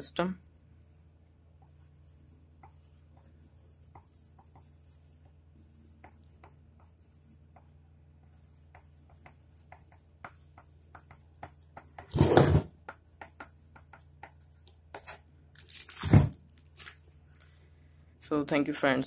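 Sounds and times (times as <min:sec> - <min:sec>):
pen scratching on paper: 0:00.8 - 0:15.2.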